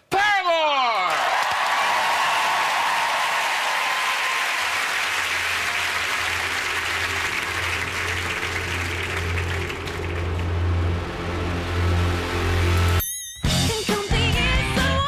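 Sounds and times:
studio audience applauding: 0:00.8 - 0:12.8
steady low drone: 0:05.2 - 0:13.0.

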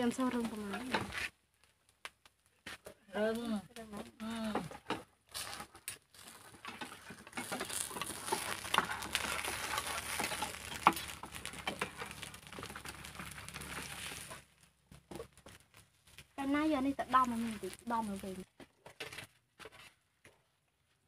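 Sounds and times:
batter sizzling: 0:00.0 - 0:19.7
spoon clicks and scrapes: 0:06.2 - 0:14.4.

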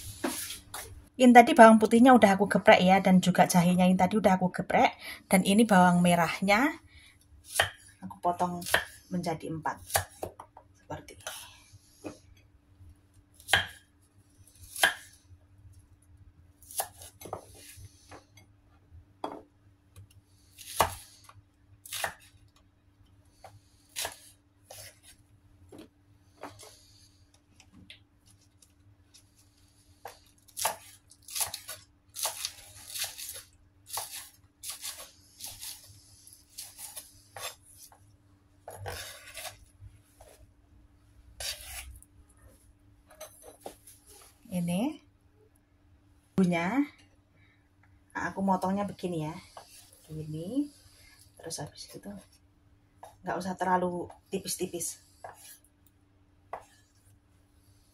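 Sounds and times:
faint steady hum: 0:00.0 - 0:57.9
knife chopping on wooden board: 0:08.6 - 0:09.0, 0:13.4 - 0:13.8, 0:14.7 - 0:15.2, 0:30.0 - 0:33.1.

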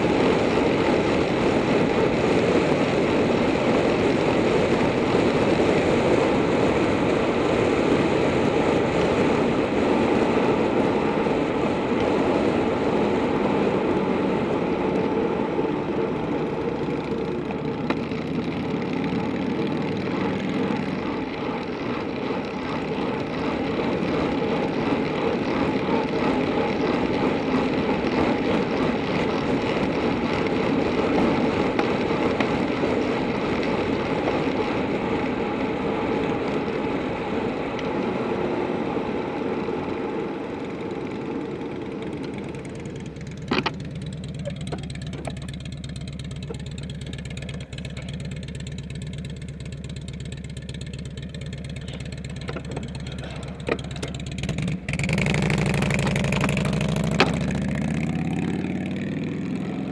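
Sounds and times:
wind rushing over microphone: 0:00.0 - 0:16.3
bicycle tyre noise on road: 0:00.0 - 0:59.9.

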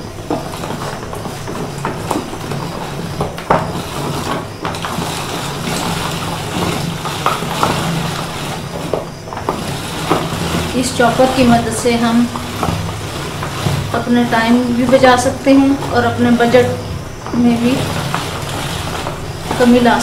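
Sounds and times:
plastic vegetable chopper rattling: 0:00.0 - 0:20.0
steady low hum: 0:00.0 - 0:20.0.

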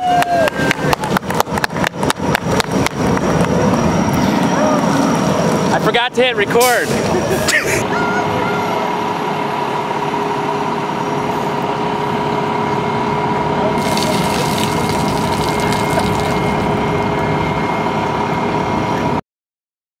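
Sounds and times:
concrete mixer truck running: 0:00.0 - 0:19.2
water splashing: 0:13.8 - 0:16.7.

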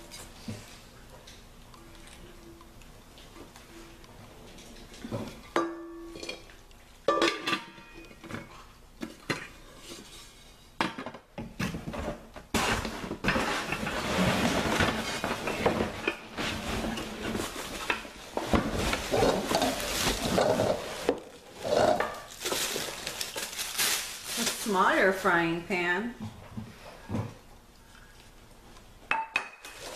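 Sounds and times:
packaging rustling and clattering: 0:11.7 - 0:25.1.

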